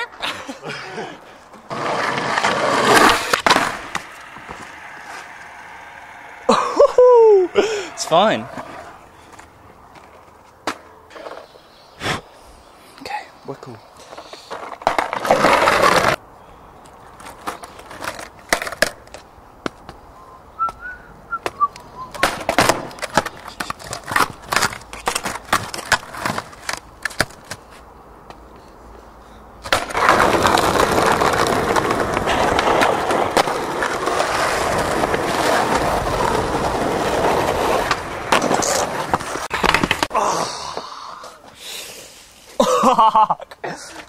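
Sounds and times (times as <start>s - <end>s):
skateboard wheels rolling on asphalt: 0.0s - 12.8s, 13.8s - 44.0s
skateboard clacks on asphalt: 1.5s - 6.1s, 8.5s - 11.6s, 14.0s - 16.2s, 16.8s - 20.0s, 21.4s - 29.0s, 29.6s - 40.1s.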